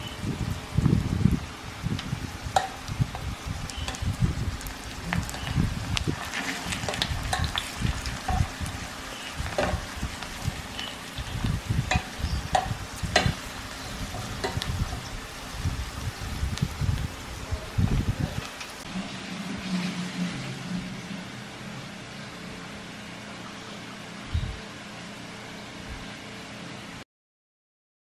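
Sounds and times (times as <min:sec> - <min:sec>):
food frying in oil: 0:00.0 - 0:21.9
tongs clicking and scraping pan: 0:02.5 - 0:04.1, 0:06.2 - 0:08.5, 0:10.7 - 0:15.1.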